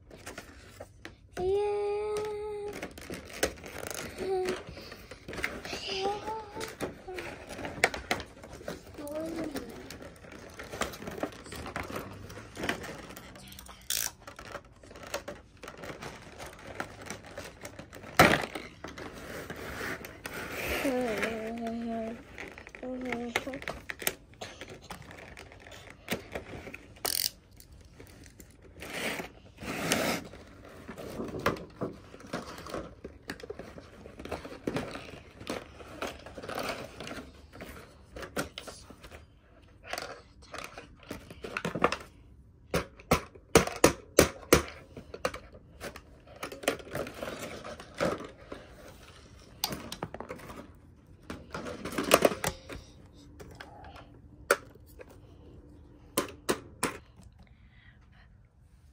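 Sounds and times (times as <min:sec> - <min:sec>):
plastic packaging crackling: 0:02.2 - 0:28.7
plastic toy clicks: 0:13.5 - 0:15.3, 0:27.0 - 0:27.7.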